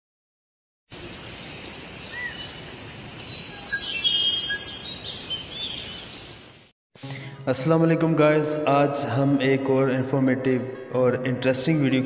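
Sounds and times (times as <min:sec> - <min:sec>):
steady background hiss: 0:00.9 - 0:10.2
birds chirping and whistling: 0:01.6 - 0:02.6, 0:03.2 - 0:06.4.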